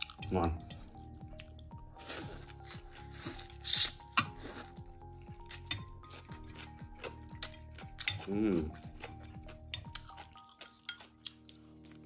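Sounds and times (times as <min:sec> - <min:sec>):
music with deep sliding bass: 0:00.0 - 0:10.2
utensils clinking against a bowl: 0:05.5 - 0:11.5.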